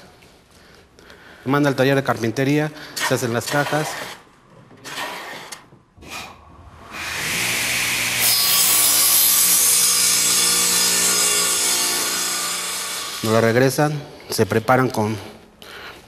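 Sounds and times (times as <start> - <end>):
saw cutting wood: 4.8 - 13.8
saw motor humming: 6.8 - 13.4.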